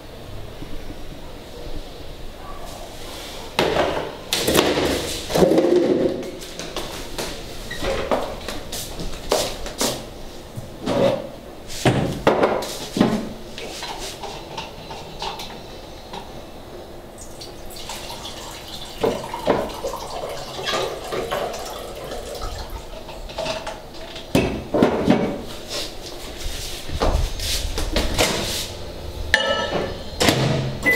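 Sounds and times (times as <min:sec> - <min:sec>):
water running at a sink: 0:17.2 - 0:23.4
dishes clinking: 0:29.3 - 0:30.1.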